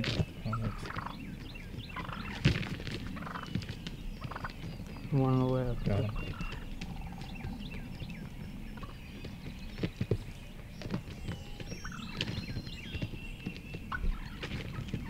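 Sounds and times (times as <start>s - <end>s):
high bird chirps: 3.2s - 15.0s.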